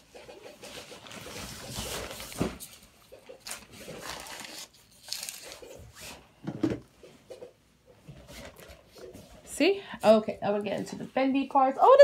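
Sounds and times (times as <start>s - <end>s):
fabric rustling and sliding: 0.6s - 2.8s.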